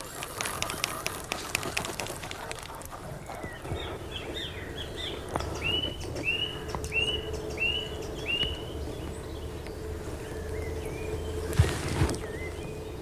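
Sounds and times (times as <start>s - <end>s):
faint steady hum: 0.0s - 13.0s
low rumble of open air: 0.0s - 13.0s
songbird chirping: 0.0s - 13.0s.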